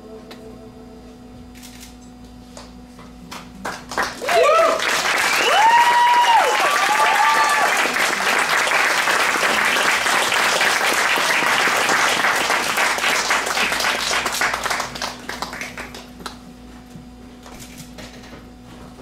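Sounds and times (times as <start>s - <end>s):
audience applauding: 3.6s - 16.4s.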